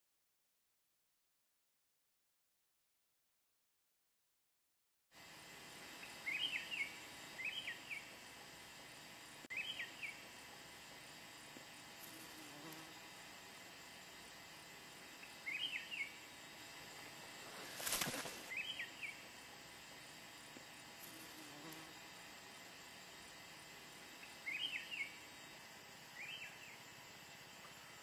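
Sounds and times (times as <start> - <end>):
insect chirring: 11.0 - 28.0.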